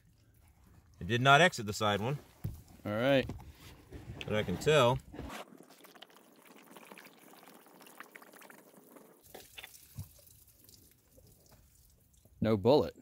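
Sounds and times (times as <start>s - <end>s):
liquid moving and dripping: 0.0s - 1.2s, 4.0s - 12.4s.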